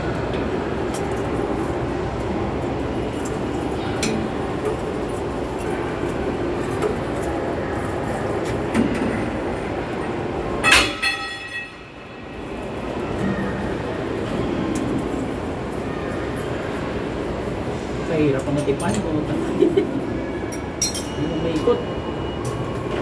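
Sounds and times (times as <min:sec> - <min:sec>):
hand tool clanking on metal: 0:20.5 - 0:21.2.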